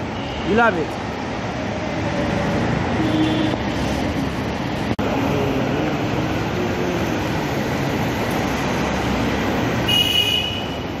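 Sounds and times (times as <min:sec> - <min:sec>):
loud rumbling noise: 0:03.6 - 0:09.8.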